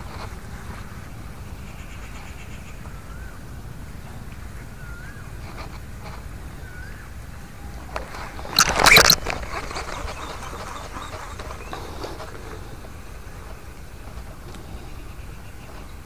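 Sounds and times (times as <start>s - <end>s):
short loud burst of noise: 8.5s - 9.3s.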